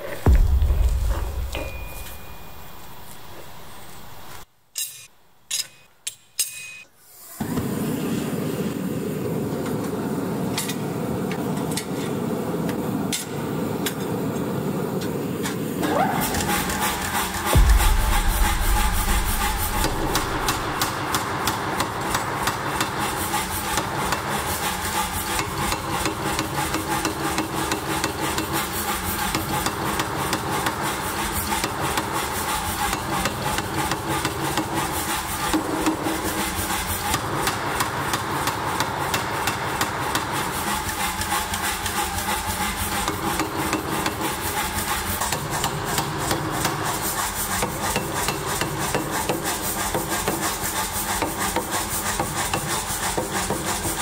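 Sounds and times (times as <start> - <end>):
power hammer striking steel: 0.2 - 6.8, 15.9 - 24.3.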